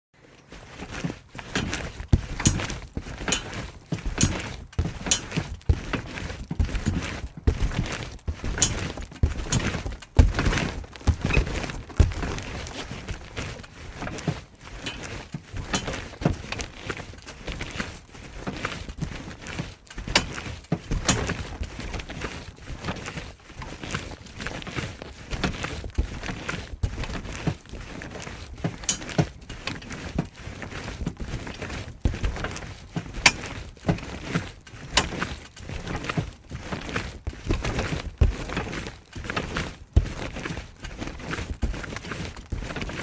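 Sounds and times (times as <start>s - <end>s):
trampoline landing thumps: 0.9s - 16.8s, 20.0s - 22.2s.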